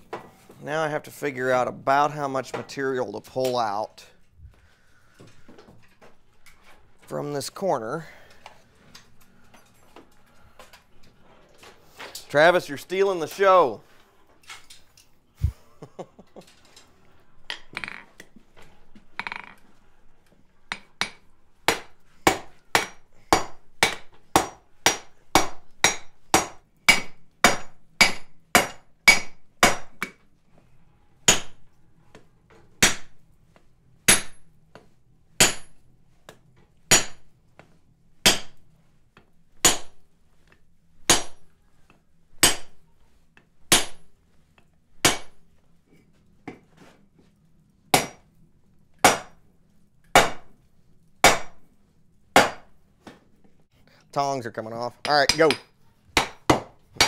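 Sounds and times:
hammer striking steel on anvil: 20.7 - 30.2, 31.3 - 31.6, 32.8 - 33.1, 34.1 - 34.4, 35.4 - 35.8, 36.9 - 37.3, 38.2 - 38.6, 39.6 - 40.0, 41.1 - 41.4, 42.4 - 42.8, 43.7 - 44.1, 45.0 - 45.4, 48.0 - 48.2, 49.0 - 49.4, 50.1 - 50.5, 51.2 - 51.6, 52.4 - 52.7, 55.0 - 56.7.

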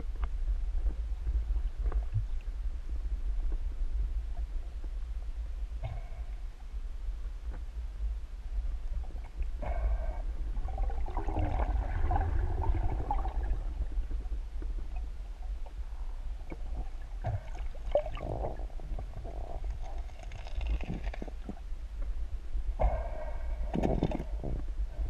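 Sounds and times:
underwater rumble of moving water: 0.0 - 25.0
water gurgling and bubbling: 9.0 - 15.5, 16.4 - 21.6, 23.6 - 24.6.

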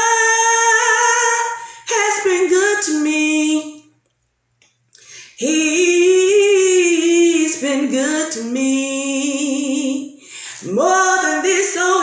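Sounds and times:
woman singing a cappella: 0.0 - 4.0, 5.0 - 12.0
woman breathing: 1.6 - 1.9, 4.9 - 5.4, 10.2 - 10.7.

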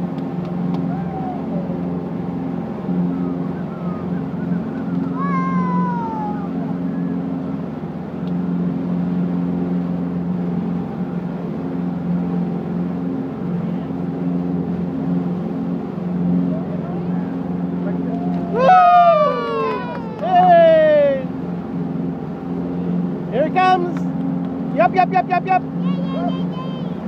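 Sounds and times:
motorboat engine drone: 0.0 - 27.0
rushing wake water: 0.0 - 27.0
short high gliding cry: 3.1 - 7.1, 18.5 - 21.3.

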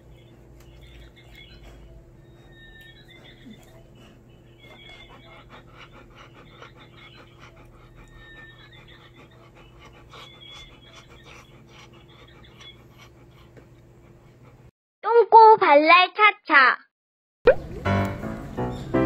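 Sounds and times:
dog panting: 0.0 - 14.7.

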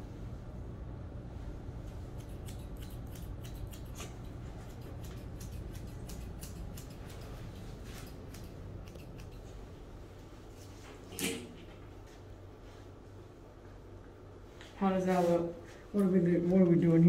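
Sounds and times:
steady low hum: 0.0 - 17.0
scissors snipping hair: 1.8 - 9.6.

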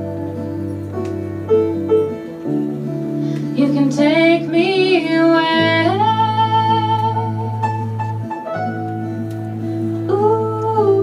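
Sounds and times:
guitars and piano chords: 0.0 - 11.0
woman singing: 3.5 - 8.2, 9.9 - 11.0.

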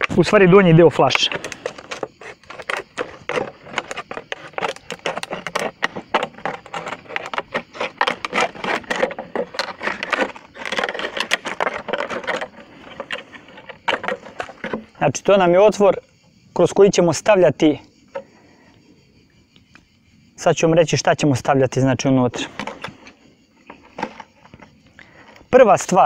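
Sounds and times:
knife sawing plastic bottle: 1.3 - 14.8.

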